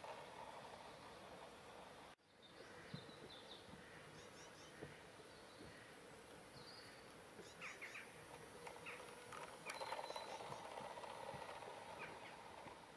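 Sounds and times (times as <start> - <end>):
model train humming on track: 0.0 - 12.9
small birds chirping: 2.2 - 12.5.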